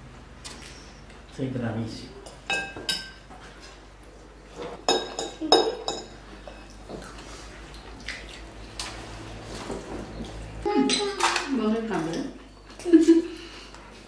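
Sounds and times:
cutlery clinking against bowl: 4.8 - 6.7.

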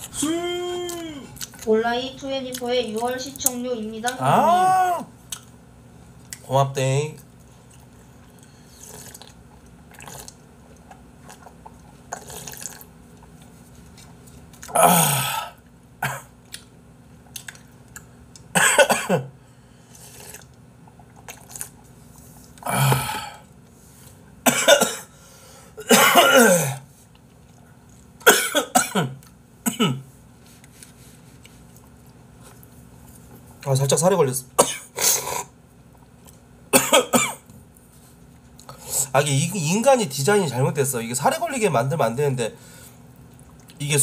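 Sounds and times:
man coughing: 14.7 - 16.3, 18.6 - 19.3, 24.5 - 25.1, 25.8 - 26.8, 28.2 - 30.0, 34.6 - 35.5, 36.7 - 37.4.

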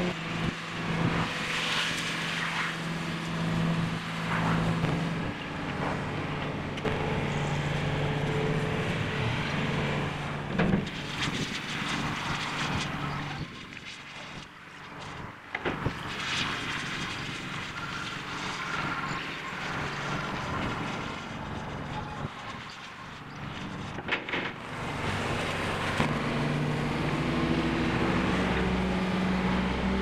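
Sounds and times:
engine droning: 0.0 - 30.0
broad wash of noise: 24.7 - 30.0.

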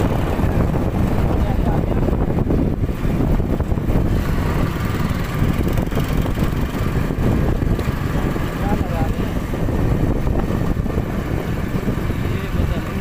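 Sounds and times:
motorcycle engine running: 0.0 - 13.0.

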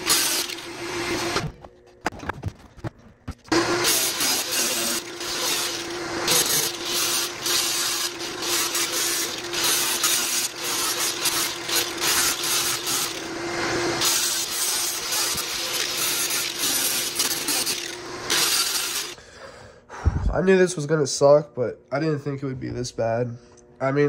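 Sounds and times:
power sander motor hum: 3.5 - 19.2.

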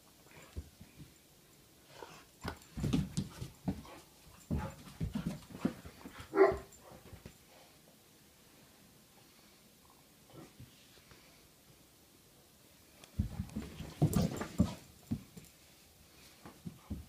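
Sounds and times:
puppy thumping and scuffling on carpet: 2.1 - 7.4, 13.1 - 15.6, 16.2 - 17.0.

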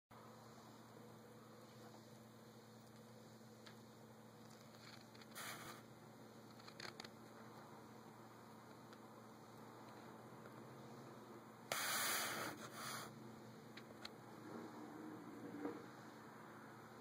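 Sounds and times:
light scratches: 4.4 - 5.9.

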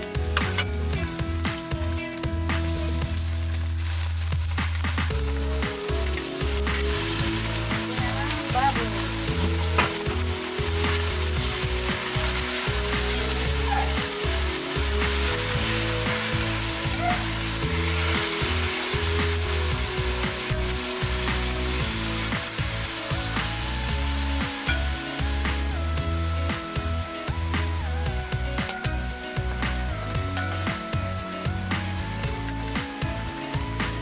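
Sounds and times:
metal spatula scraping wok: 0.0 - 1.0
meat sizzling in hot oil: 0.0 - 34.0.

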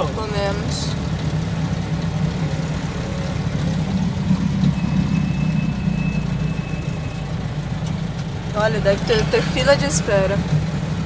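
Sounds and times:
road noise: 0.0 - 11.0
van engine humming: 0.0 - 11.0
faint high whine: 2.6 - 7.6.

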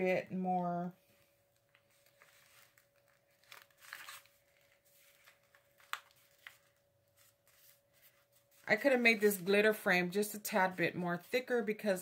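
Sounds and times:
paper wrapper crinkling: 1.4 - 9.6.

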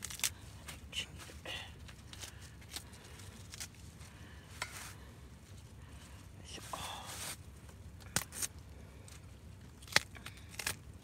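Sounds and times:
cabbage leaves tearing: 0.0 - 0.4, 2.1 - 3.9, 8.0 - 8.6, 9.7 - 11.0.

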